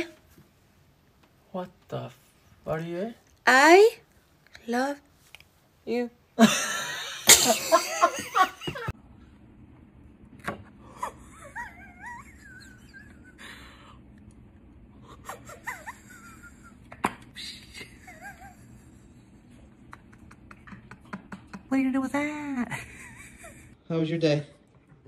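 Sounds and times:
woman laughing loudly: 6.4s - 8.9s, 10.9s - 13.8s, 15.0s - 19.2s
stifled laughter: 10.8s - 13.9s, 15.0s - 21.7s.

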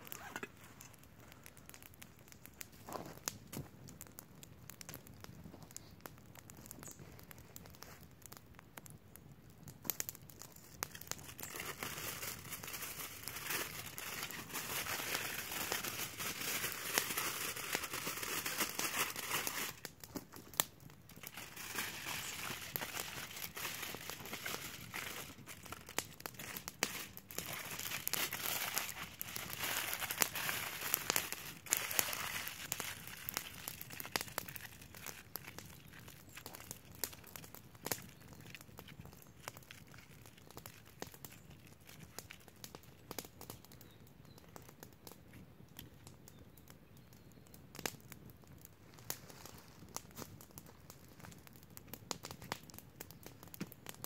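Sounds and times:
aluminium foil crinkling: 0.0s - 3.8s, 9.9s - 20.5s, 21.1s - 43.6s.

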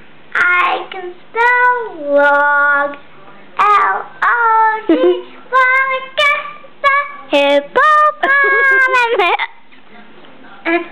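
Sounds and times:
girl singing with hiccups: 4.8s - 5.2s, 7.8s - 9.5s.

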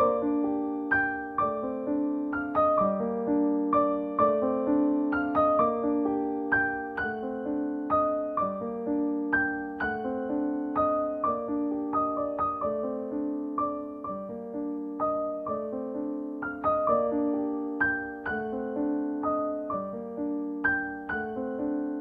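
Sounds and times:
solo piano melody: 0.0s - 22.0s.

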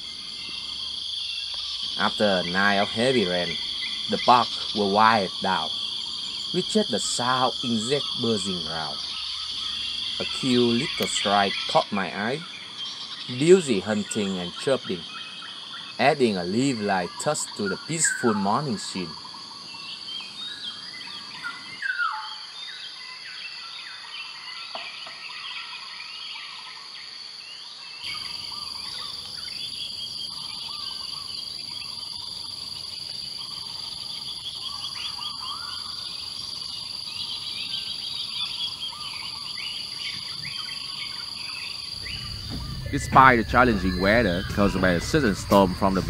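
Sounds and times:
high-pitched insect drone: 0.0s - 24.0s, 28.0s - 46.0s
bird calls and chirps: 0.0s - 46.0s.

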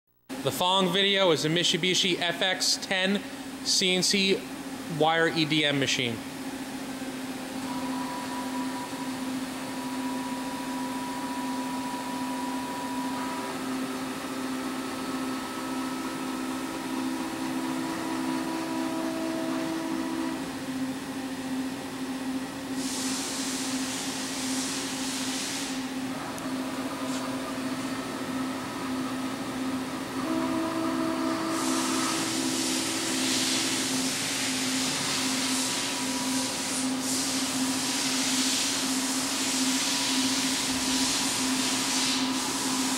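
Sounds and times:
machine hum: 0.1s - 42.9s
whining tones: 7.6s - 20.9s
loud hiss: 22.8s - 25.9s.

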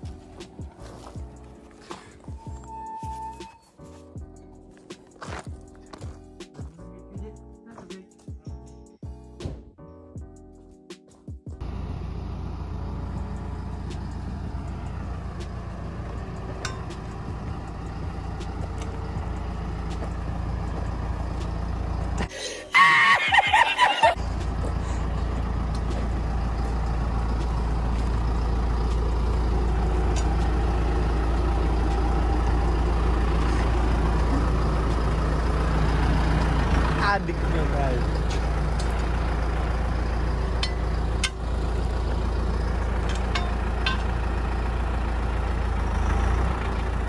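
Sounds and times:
tractor diesel engine running: 0.0s - 9.3s, 11.5s - 47.0s
man laughing: 22.4s - 24.2s.

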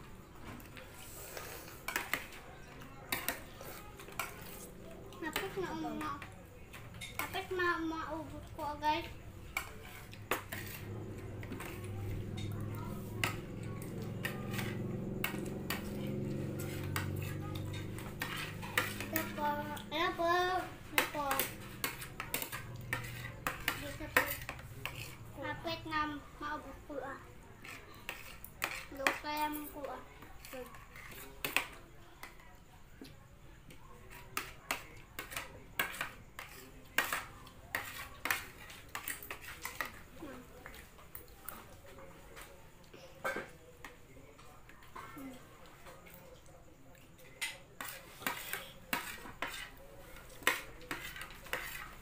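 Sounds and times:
cutlery clinking on plastic plates: 1.7s - 7.8s, 9.4s - 25.3s, 27.6s - 33.2s, 34.0s - 46.4s, 47.2s - 52.0s.

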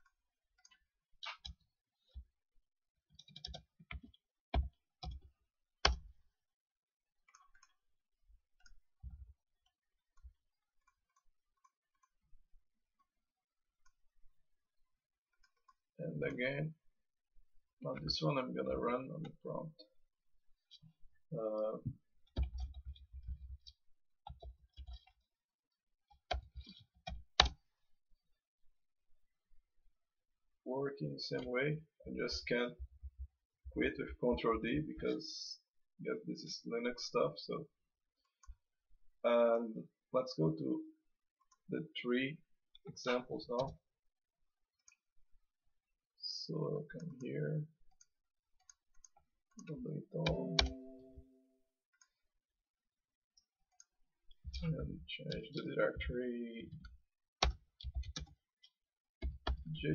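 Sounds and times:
keyboard typing: 50.2s - 51.2s.

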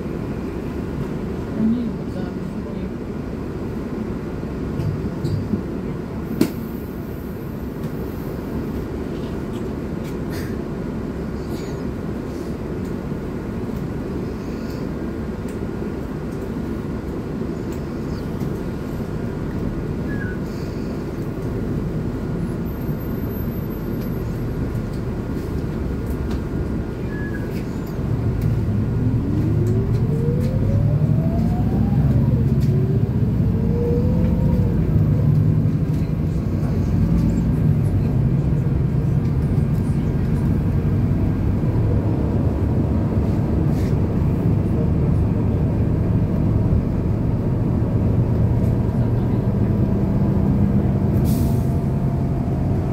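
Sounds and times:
bus engine drone: 0.0s - 52.9s
rising whine: 28.7s - 35.0s.

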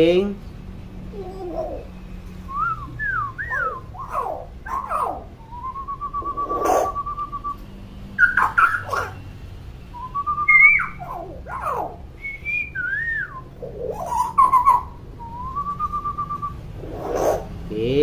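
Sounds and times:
myna trilled whistle: 2.5s - 4.4s, 5.4s - 7.6s, 9.9s - 11.2s, 12.2s - 13.6s, 14.2s - 16.6s.

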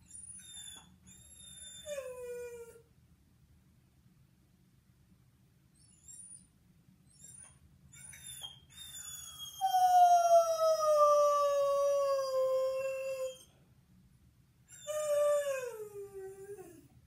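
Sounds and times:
dog howling: 9.6s - 13.4s.

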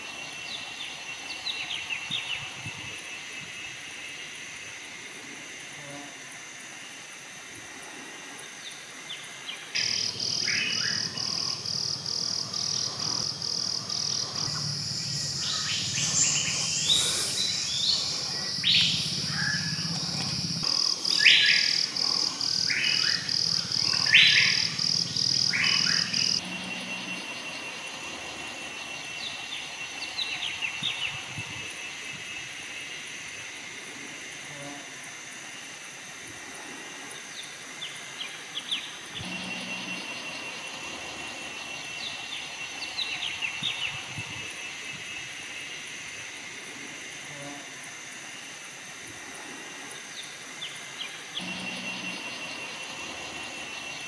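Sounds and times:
faint steady insect tone: 0.0s - 54.0s
pulsing insect drone: 0.0s - 54.0s
birds calling: 9.5s - 31.4s
sharp bird chirps: 9.8s - 26.4s.

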